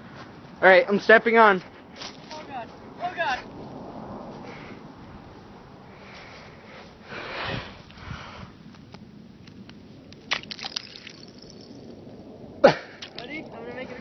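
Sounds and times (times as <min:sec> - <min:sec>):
person breathing loudly: 0:04.4 - 0:04.9, 0:05.9 - 0:08.6
ice cracking: 0:09.5 - 0:12.0, 0:12.7 - 0:13.8.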